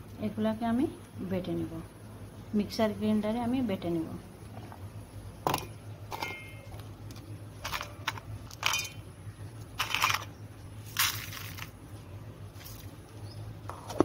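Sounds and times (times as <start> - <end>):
low steady hum: 0.0 - 14.0
food dropped into metal jar: 7.6 - 9.0, 9.8 - 10.3, 10.9 - 11.8.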